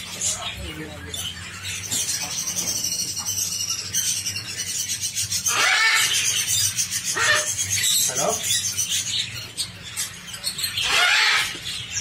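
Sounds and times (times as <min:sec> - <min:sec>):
parrots chirring chatter: 0:00.0 - 0:12.0
harsh parrot call: 0:05.4 - 0:07.8, 0:10.7 - 0:11.9.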